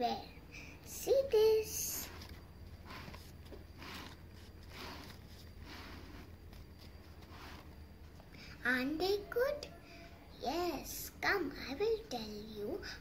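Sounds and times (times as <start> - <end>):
low steady hum: 0.0 - 13.0
paper rustling: 2.0 - 7.8.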